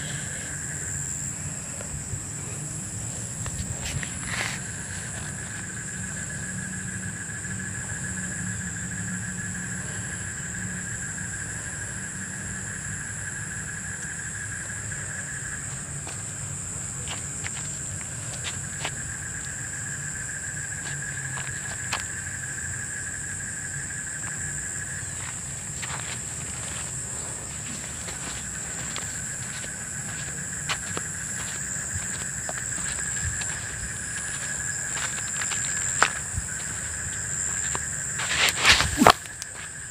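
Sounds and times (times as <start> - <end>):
crickets trilling: 0.0 - 39.9.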